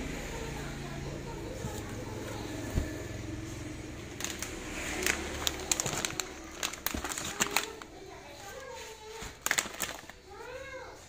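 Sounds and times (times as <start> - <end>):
plastic packets crinkling: 4.0 - 10.6.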